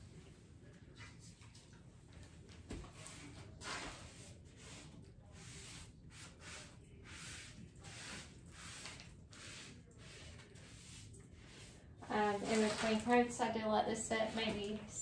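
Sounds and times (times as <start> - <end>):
paintbrush swishing on wood: 3.0 - 12.9.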